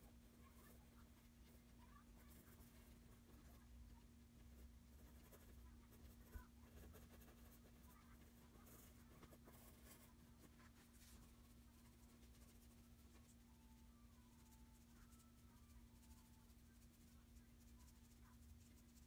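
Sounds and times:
pencil scratching on paper: 0:00.0 - 0:03.7, 0:04.4 - 0:13.4.

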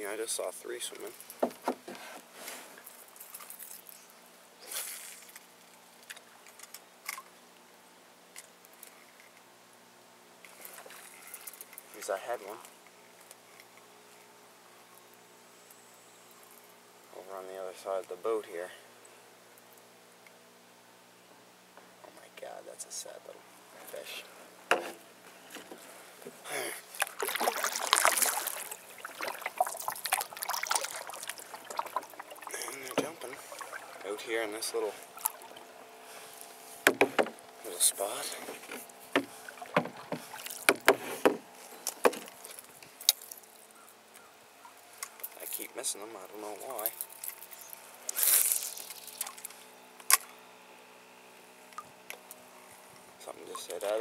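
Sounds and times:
faint steady hum: 0:00.0 - 0:54.0
water splashing against boat: 0:26.8 - 0:37.4, 0:38.1 - 0:41.4.

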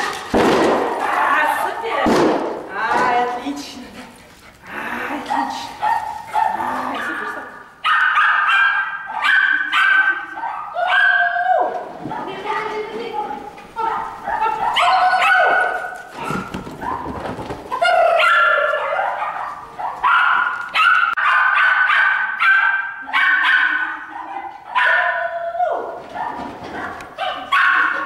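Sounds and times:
dog barking and yipping: 0:05.3 - 0:11.4, 0:13.9 - 0:25.4, 0:26.1 - 0:28.0.

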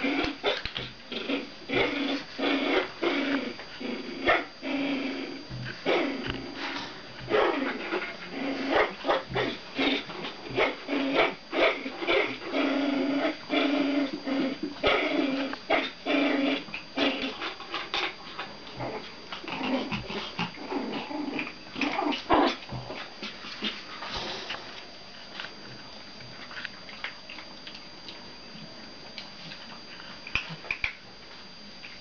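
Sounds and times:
dogs growling: 0:00.0 - 0:24.8.

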